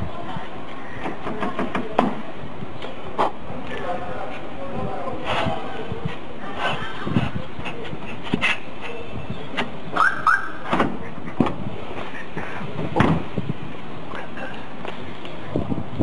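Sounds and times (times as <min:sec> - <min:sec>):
street noise: 0:00.0 - 0:16.0.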